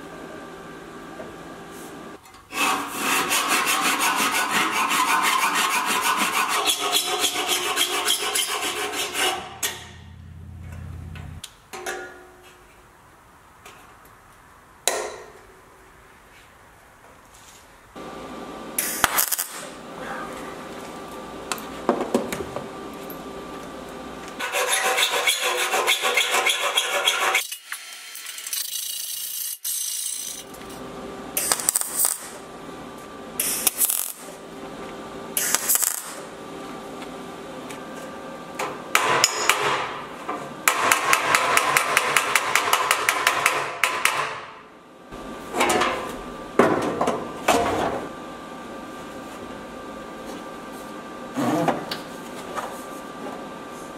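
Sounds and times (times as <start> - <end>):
mig welder welding: 18.8 - 19.8, 25.9 - 32.5, 33.4 - 34.4, 35.3 - 36.4, 40.6 - 44.1.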